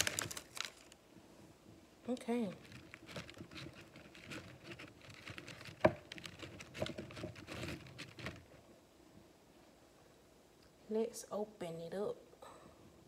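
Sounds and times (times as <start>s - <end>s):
plastic wrapper crinkling: 0.0s - 1.0s, 2.2s - 8.6s.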